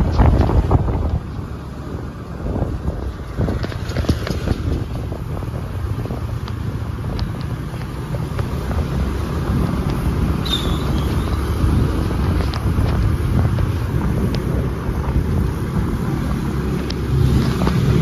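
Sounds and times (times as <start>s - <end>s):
scooters passing: 0.0s - 18.0s
wind rushing on microphone: 0.0s - 18.0s
short high squeal: 10.4s - 11.4s.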